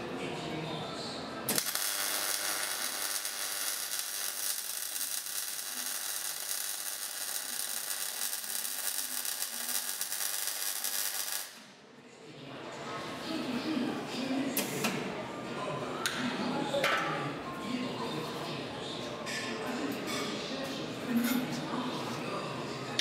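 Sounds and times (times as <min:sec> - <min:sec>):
welding arc crackling: 0:01.5 - 0:11.6.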